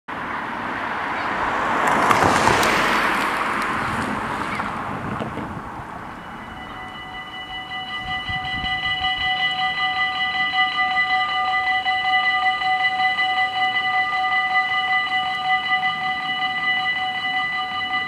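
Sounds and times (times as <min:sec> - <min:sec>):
car driving past: 0:00.2 - 0:06.7
level crossing warning bells: 0:05.8 - 0:18.0.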